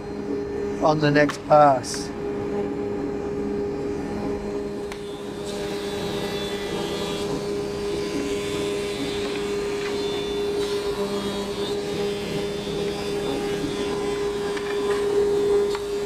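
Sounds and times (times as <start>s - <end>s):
planer machine hum: 4.8s - 16.0s.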